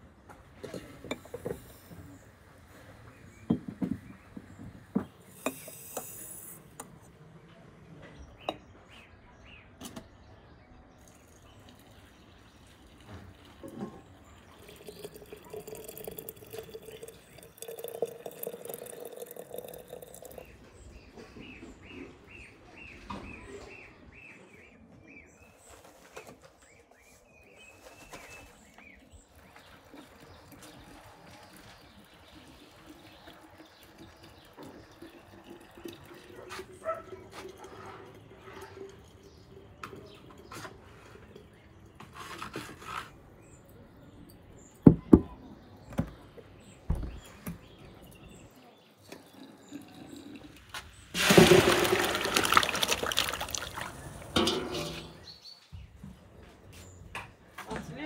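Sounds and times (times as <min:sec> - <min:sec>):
birds chirping: 0:00.7 - 0:42.2, 0:43.1 - 0:58.0
water pouring into glass jar: 0:11.0 - 0:20.6, 0:29.4 - 0:42.0, 0:49.0 - 0:55.4.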